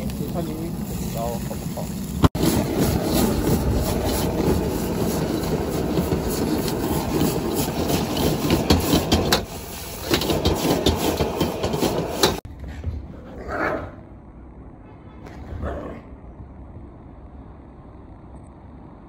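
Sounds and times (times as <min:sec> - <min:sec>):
gas burner flame rushing: 0:00.0 - 0:12.5
metal ladle scraping a wok: 0:02.4 - 0:12.4.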